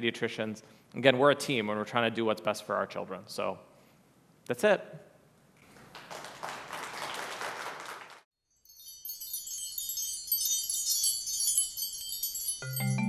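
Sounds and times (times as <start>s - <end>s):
audience applause: 5.8s - 8.2s
high tinkling chime shimmer: 8.5s - 13.0s.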